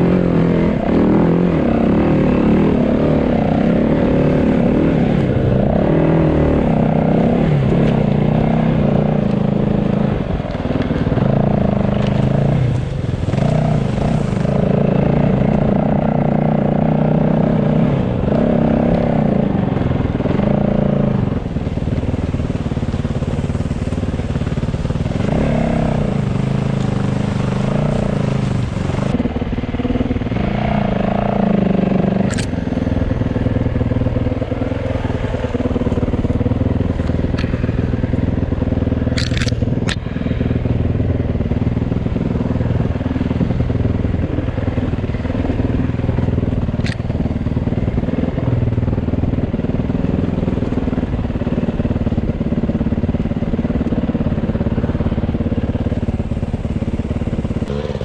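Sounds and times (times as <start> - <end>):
motorcycle engine revving: 0.0 - 58.0
sharp clicks: 32.2 - 32.6, 39.1 - 40.0, 46.8 - 47.1.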